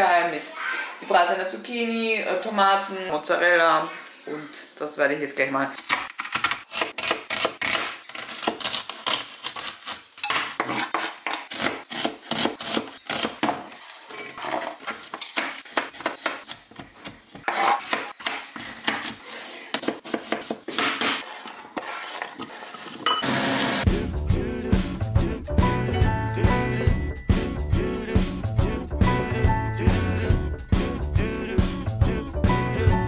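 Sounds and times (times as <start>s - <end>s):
knife chopping on cutting board: 10.3s - 13.6s, 15.0s - 21.3s.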